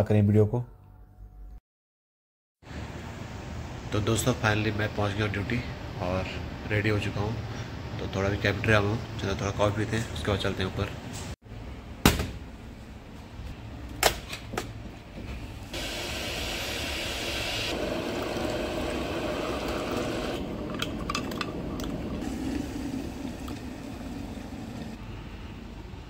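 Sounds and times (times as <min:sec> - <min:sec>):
liquid pouring into mug: 0:15.8 - 0:25.0.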